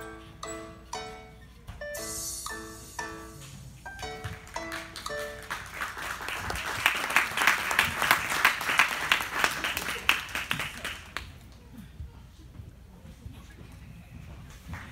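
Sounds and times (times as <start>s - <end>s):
floor music: 0.0s - 7.1s
small group clapping: 4.3s - 11.6s.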